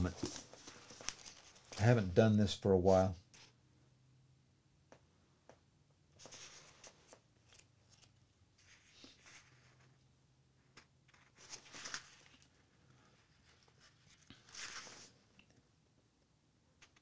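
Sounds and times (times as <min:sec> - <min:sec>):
paper rustling and clicks: 0:00.0 - 0:01.9, 0:10.8 - 0:12.5, 0:14.2 - 0:15.5.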